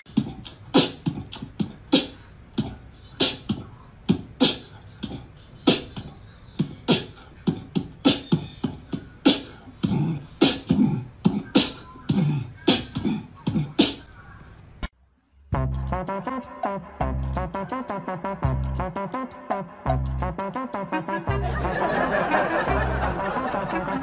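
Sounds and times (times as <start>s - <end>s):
beatboxing: 0.0s - 14.8s, 15.6s - 24.0s.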